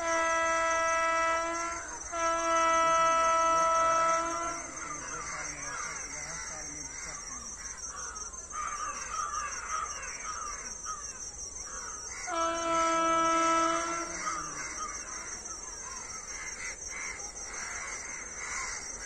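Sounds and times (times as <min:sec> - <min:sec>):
train horn blast: 0:00.0 - 0:05.1, 0:12.3 - 0:14.9
birds calling and cawing: 0:04.8 - 0:12.3, 0:14.0 - 0:19.0.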